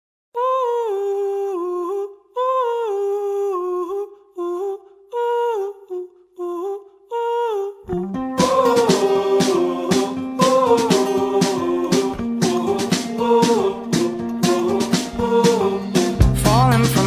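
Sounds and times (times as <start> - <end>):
person humming a slow melody: 0.4 - 8.2.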